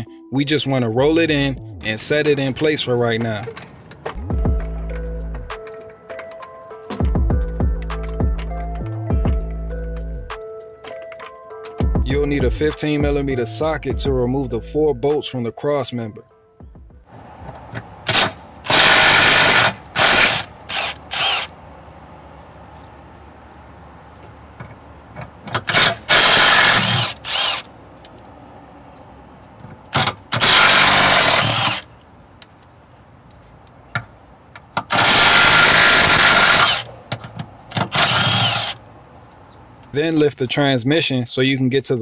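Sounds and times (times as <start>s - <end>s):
impact wrench hammering bolts: 17.7s - 21.5s, 24.6s - 28.2s, 29.8s - 32.0s, 33.9s - 38.8s.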